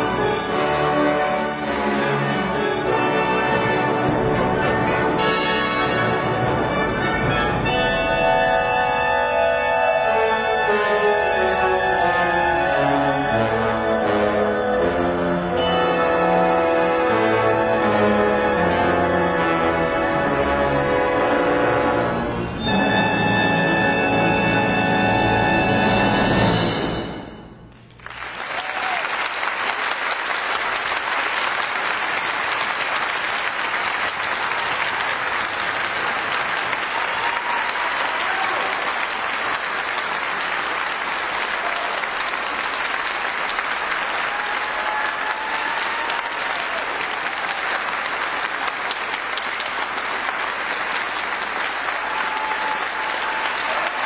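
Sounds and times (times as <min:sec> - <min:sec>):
orchestra final note: 0:03.4 - 0:12.8
audience applauding: 0:27.7 - 0:54.0.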